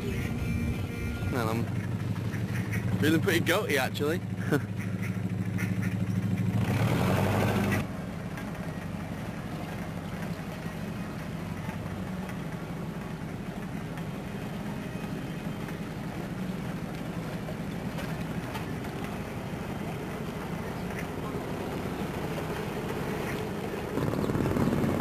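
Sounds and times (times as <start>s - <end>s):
boat engine idling: 0.0s - 25.0s.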